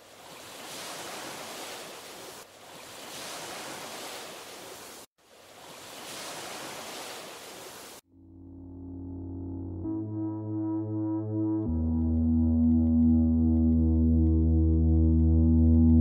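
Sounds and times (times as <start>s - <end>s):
ocean waves rushing: 0.0s - 8.0s.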